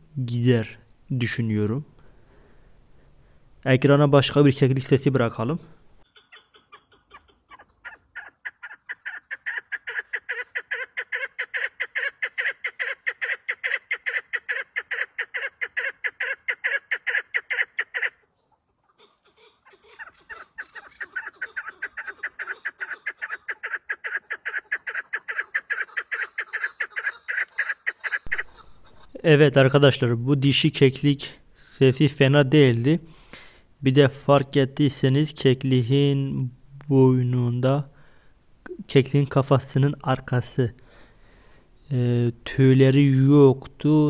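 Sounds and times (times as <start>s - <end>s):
partridge calling: 6.0s - 29.2s.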